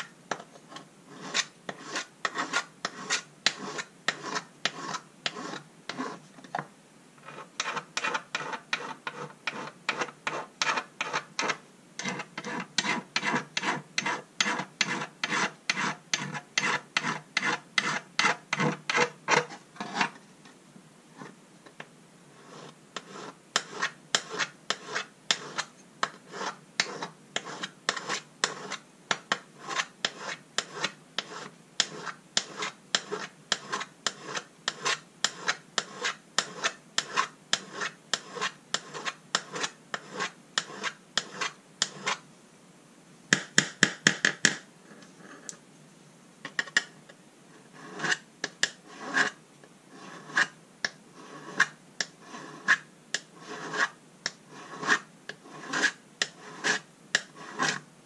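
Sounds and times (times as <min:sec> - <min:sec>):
hand file rasping on metal: 0:01.1 - 0:06.2, 0:07.2 - 0:20.1, 0:22.5 - 0:42.2, 0:47.8 - 0:49.4, 0:50.0 - 0:50.6, 0:51.2 - 0:52.8, 0:53.4 - 0:57.8.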